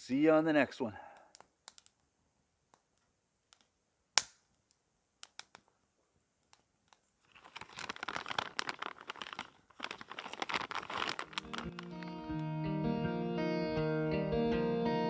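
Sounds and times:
plastic bag crinkling: 0:07.2 - 0:12.4.

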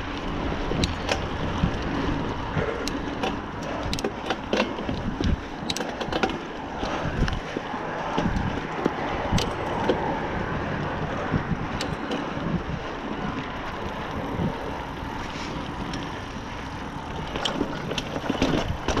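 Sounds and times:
rattles and knocks over bumps: 0:00.0 - 0:14.5, 0:15.9 - 0:19.0
bike tyre and drivetrain noise: 0:00.0 - 0:19.0
wind buffeting microphone: 0:00.0 - 0:19.0.

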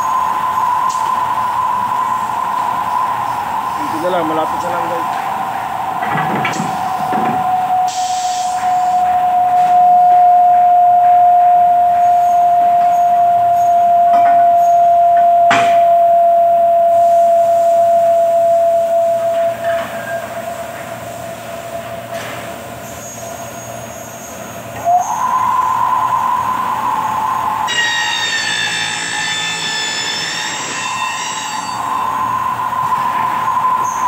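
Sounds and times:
milling machine motor whine: 0:00.0 - 0:34.0.

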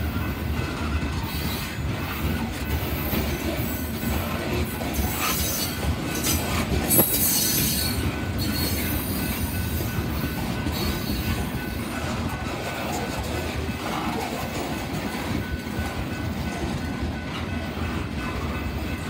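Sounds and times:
train wheels rumbling on rails: 0:00.0 - 0:19.0
high wheel squeal: 0:05.0 - 0:11.9.

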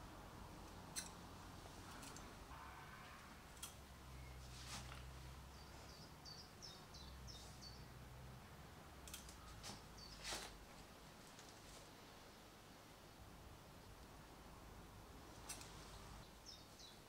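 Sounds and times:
bird chirping: 0:01.9 - 0:04.5, 0:05.4 - 0:08.0, 0:09.3 - 0:10.3, 0:15.9 - 0:17.0.

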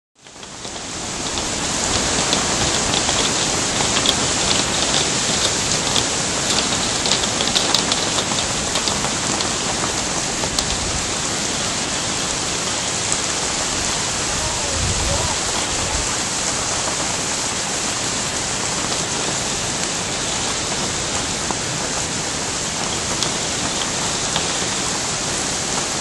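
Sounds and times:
close raindrop ticks: 0:00.2 - 0:26.0
heavy rain on foliage: 0:00.2 - 0:26.0.

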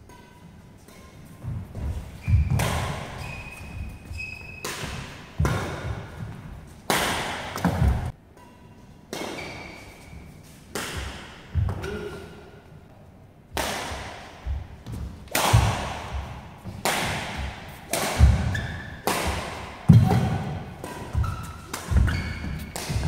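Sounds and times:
racket striking shuttlecock: 0:00.0 - 0:10.1, 0:10.7 - 0:12.1, 0:13.6 - 0:23.0
shoe squeaks: 0:02.0 - 0:05.2, 0:09.4 - 0:10.3, 0:18.4 - 0:19.0, 0:21.0 - 0:23.0.

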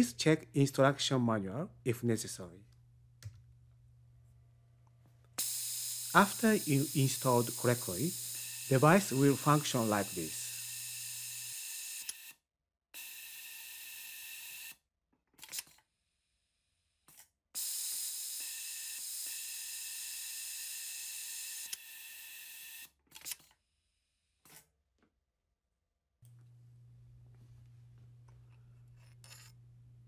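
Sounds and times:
sewing machine hissing with whine: 0:05.4 - 0:12.4, 0:17.6 - 0:22.9.

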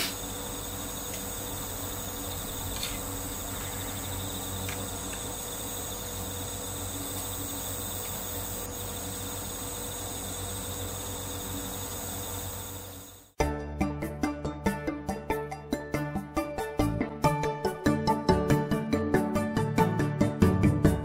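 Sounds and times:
crickets chirping: 0:00.0 - 0:13.3.

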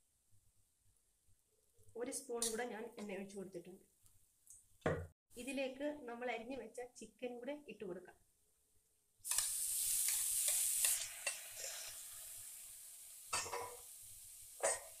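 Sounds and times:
chicken sizzling in hot oil: 0:09.2 - 0:15.0
spoon scraping a pan: 0:09.3 - 0:12.2, 0:13.3 - 0:13.9, 0:14.6 - 0:15.0.

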